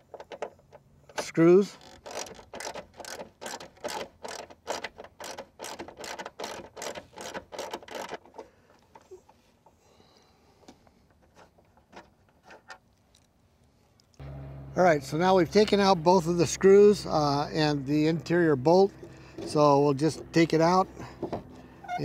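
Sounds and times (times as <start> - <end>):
ratchet wrench clicking: 1.2 - 8.2.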